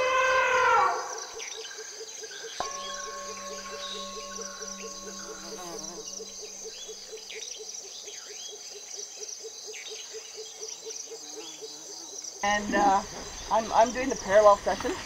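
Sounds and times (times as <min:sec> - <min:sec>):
insects chorus: 0:00.0 - 0:15.0
held tone: 0:02.6 - 0:07.1
low pulsing call: 0:02.6 - 0:07.2.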